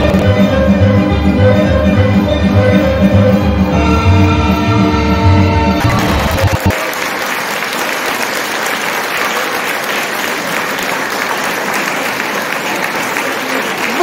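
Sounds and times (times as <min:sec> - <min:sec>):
folk dance music: 0:00.0 - 0:07.0
audience applauding: 0:05.8 - 0:14.0.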